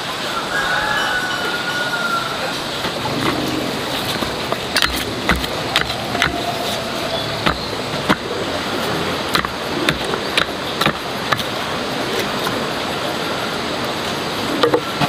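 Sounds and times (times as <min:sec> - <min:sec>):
steady rushing background noise: 0:00.0 - 0:15.0
wooden pole knocking soil: 0:09.3 - 0:11.5.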